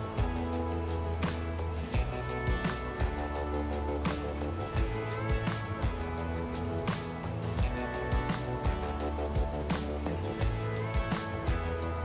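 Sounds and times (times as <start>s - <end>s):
deep bass: 0.0s - 12.0s.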